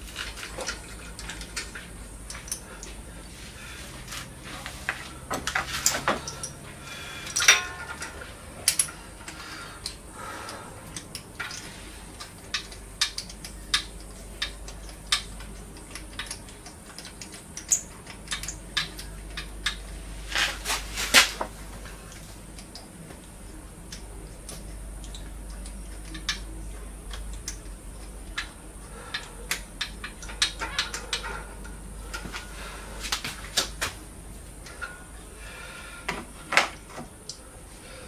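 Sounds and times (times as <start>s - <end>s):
metal tools clinking on engine parts: 7.2s - 9.0s.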